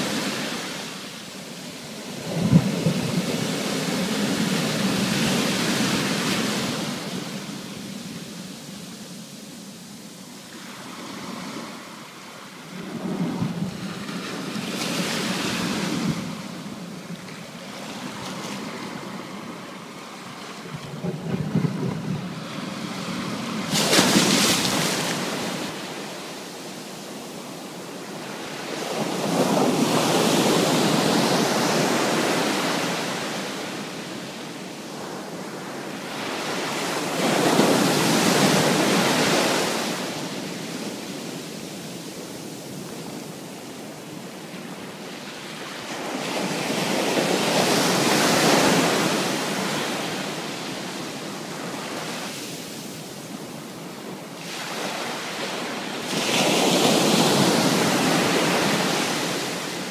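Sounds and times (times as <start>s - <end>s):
ocean waves breaking on shore: 0.0s - 59.9s.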